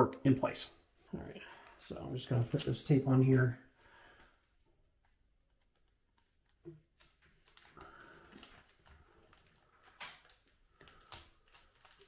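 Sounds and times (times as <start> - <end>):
tape crinkling: 5.5 - 12.0.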